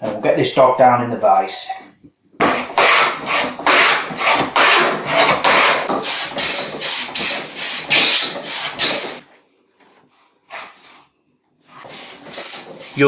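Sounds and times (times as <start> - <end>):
hand plane shaving wood: 2.4 - 9.2, 11.7 - 13.0.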